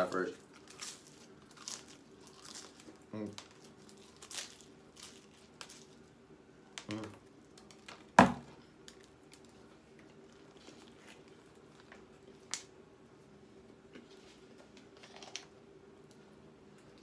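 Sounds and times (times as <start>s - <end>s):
person chewing: 0.5s - 6.0s.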